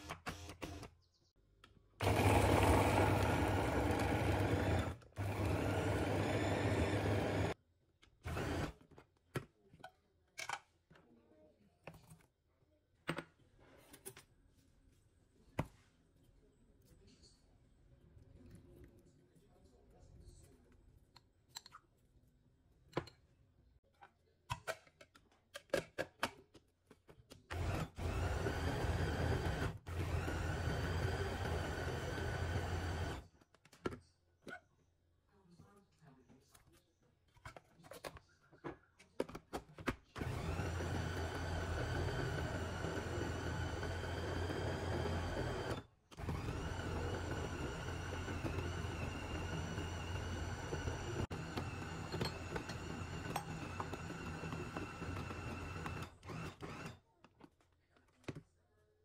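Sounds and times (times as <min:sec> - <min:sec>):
food chopper motor blending: 0:02.0 - 0:07.6, 0:08.2 - 0:08.8, 0:27.5 - 0:33.2, 0:40.2 - 0:57.0.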